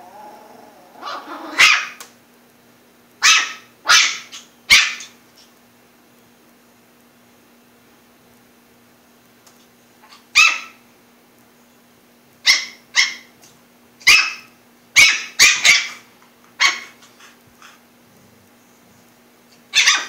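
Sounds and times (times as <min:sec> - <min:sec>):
puppy yapping: 0:00.0 - 0:02.0, 0:03.2 - 0:05.2, 0:10.0 - 0:10.8, 0:12.5 - 0:13.3, 0:14.0 - 0:17.3, 0:19.7 - 0:20.0.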